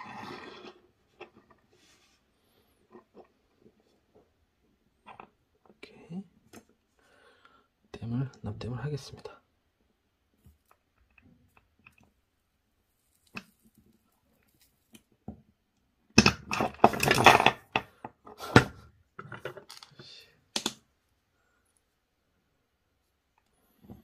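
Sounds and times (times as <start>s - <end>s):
hard objects clattering on wooden desk: 16.2s - 19.9s.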